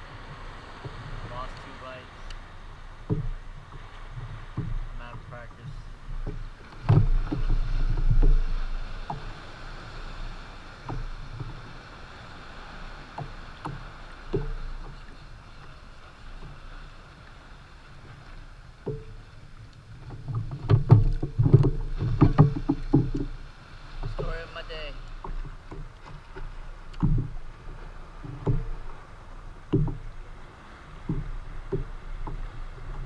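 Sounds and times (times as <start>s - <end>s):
soft wind: 0.0s - 33.0s
water noise: 0.0s - 33.0s
knocks on plastic kayak hull: 3.0s - 3.4s, 20.3s - 23.4s, 25.2s - 27.4s, 28.2s - 29.0s, 29.6s - 30.2s, 31.0s - 33.0s.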